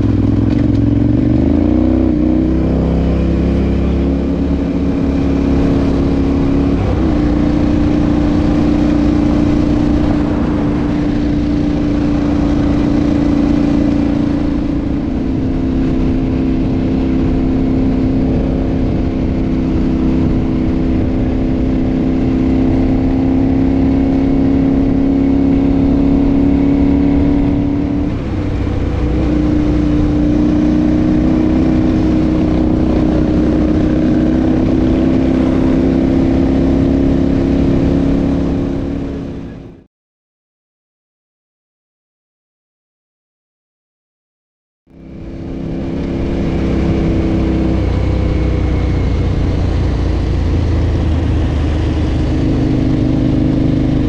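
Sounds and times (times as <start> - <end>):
motorcycle engine running: 0.0 - 39.9, 44.9 - 54.0.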